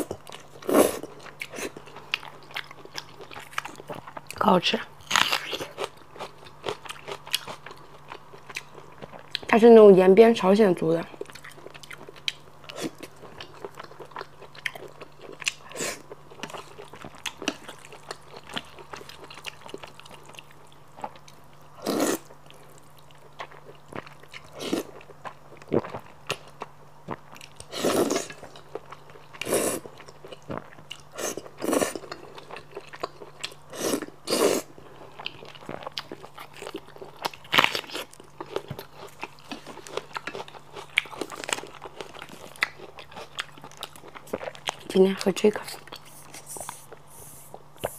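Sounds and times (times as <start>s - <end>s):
wet chewing: 11.2s - 44.9s.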